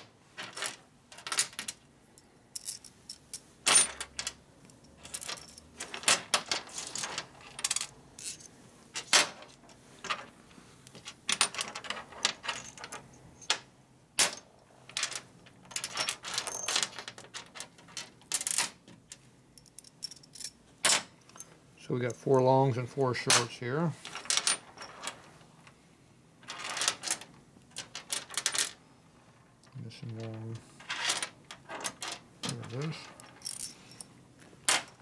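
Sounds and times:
bolts clinking on metal workbench: 0:30.9 - 0:34.1.

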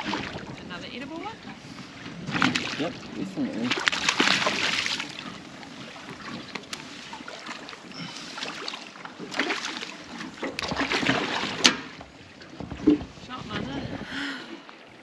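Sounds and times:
water slapping against boat hull: 0:00.0 - 0:14.9.

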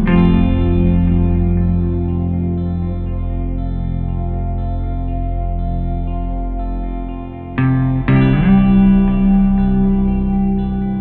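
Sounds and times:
slow ambient music: 0:00.0 - 0:11.0.

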